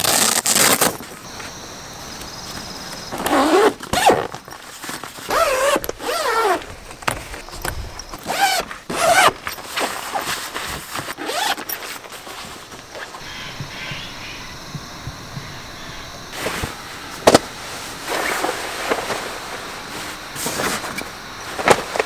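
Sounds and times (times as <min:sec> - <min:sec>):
tent zippers being pulled: 0:00.0 - 0:01.0, 0:03.1 - 0:13.2.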